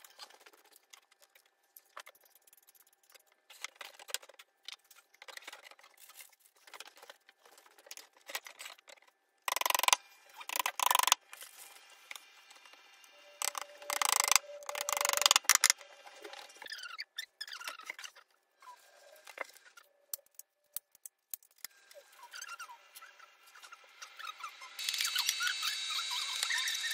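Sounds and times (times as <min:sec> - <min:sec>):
squeaky chirps: 0:16.6 - 0:18.9, 0:21.9 - 0:26.9.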